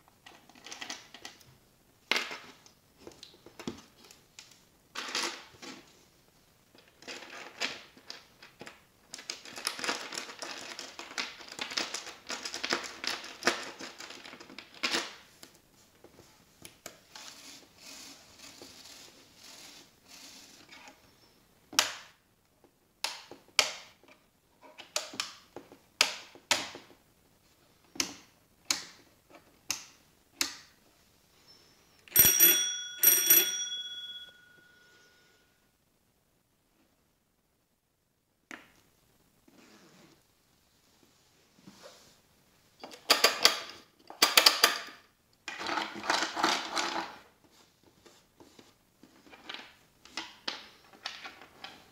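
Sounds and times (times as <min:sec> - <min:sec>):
bicycle bell ringing: 0:32.1 - 0:35.3.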